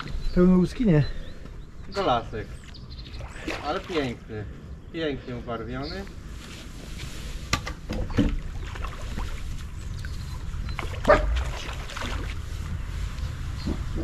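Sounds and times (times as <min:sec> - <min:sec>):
dog barking: 0:11.1 - 0:11.4.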